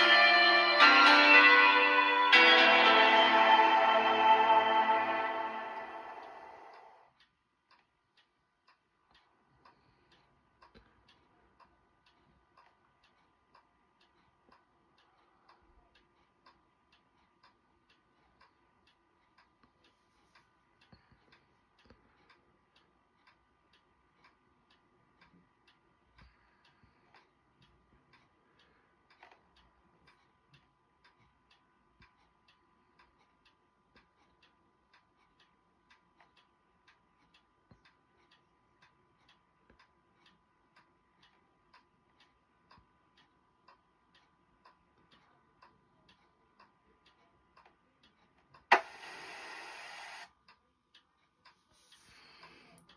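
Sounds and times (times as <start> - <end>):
faint high hum: 0.0 - 7.0
faint regular ticking: 7.2 - 52.9.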